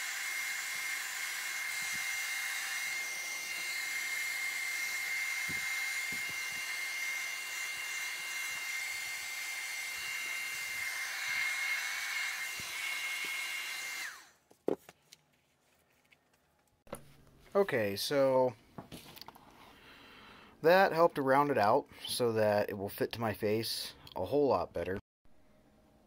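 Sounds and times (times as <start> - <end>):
hair dryer running: 0.0 - 14.4.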